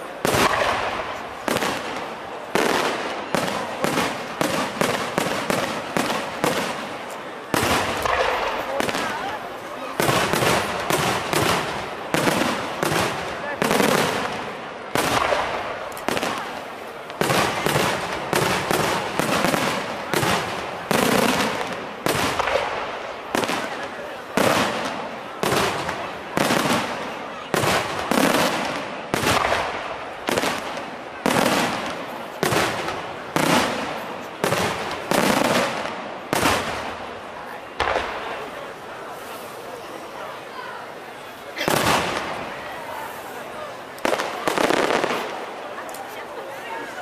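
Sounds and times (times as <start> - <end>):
fireworks bangs: 0.0 - 47.0.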